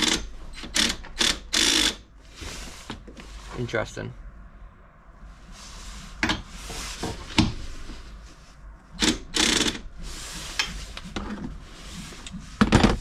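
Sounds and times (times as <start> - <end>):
cordless drill running: 0.8 - 2.0, 9.0 - 9.8.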